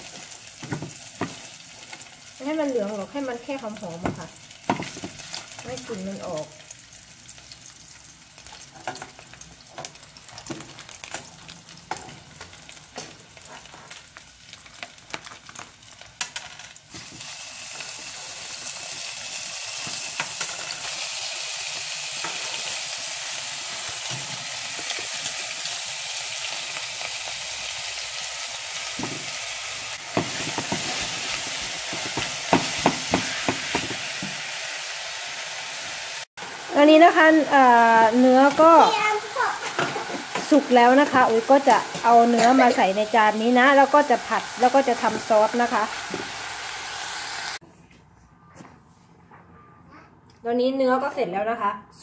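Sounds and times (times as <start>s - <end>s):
meat sizzling in a pan: 0.0s - 47.6s
spatula scraping pan: 30.1s - 34.4s
spatula knocking against pan: 31.9s - 34.4s.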